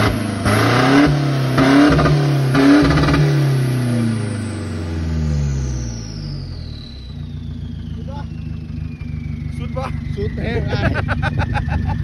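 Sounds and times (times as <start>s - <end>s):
diesel engine revving: 0.0s - 12.0s.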